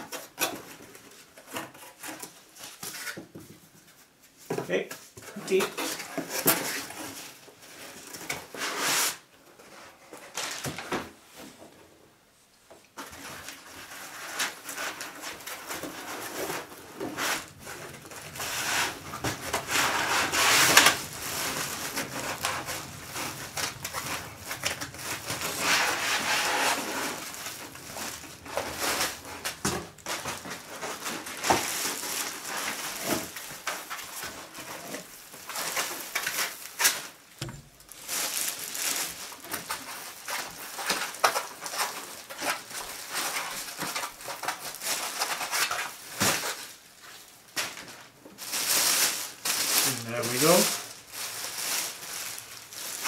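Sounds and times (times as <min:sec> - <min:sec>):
foam scraping against cardboard: 0:05.5 - 0:09.9, 0:13.5 - 0:37.0
plastic bag crinkling: 0:13.2 - 0:53.0.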